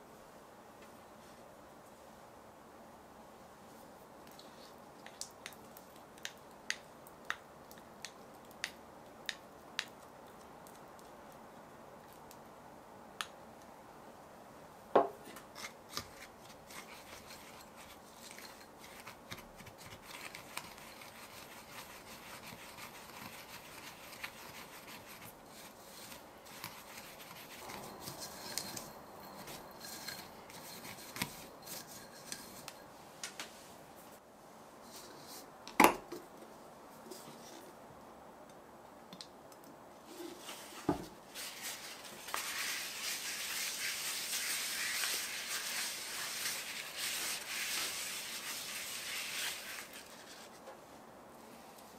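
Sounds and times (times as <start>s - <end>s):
utensil scraping sugar in glass bowl: 15.6s - 32.8s, 41.4s - 50.6s.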